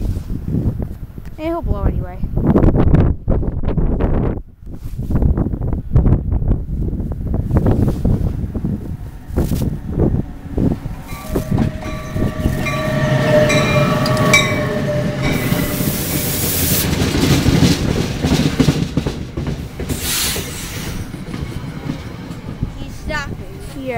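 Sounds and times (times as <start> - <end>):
train wheels rumbling on rails: 5.2 - 23.9
steady warning tones: 7.6 - 19.9.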